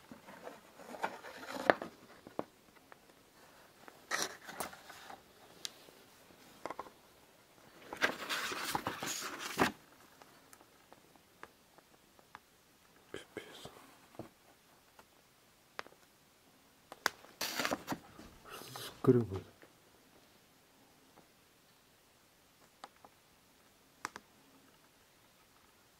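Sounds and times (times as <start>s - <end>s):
paper rustling and scraping: 0.1s - 2.3s, 4.0s - 5.2s, 7.8s - 9.8s, 17.4s - 18.0s.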